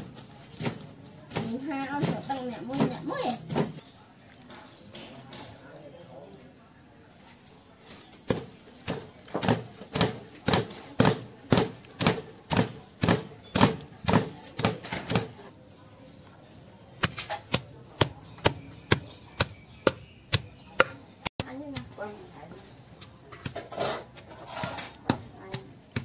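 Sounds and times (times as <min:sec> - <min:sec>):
pestle pounding in stone mortar: 0:08.3 - 0:15.4, 0:17.0 - 0:22.2, 0:22.8 - 0:26.0.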